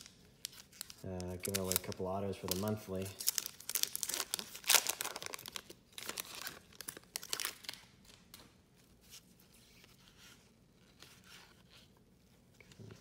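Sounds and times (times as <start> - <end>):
foil wrapper crinkling and tearing: 0.0 - 8.2
faint rustles and clicks of cards: 0.0 - 13.0.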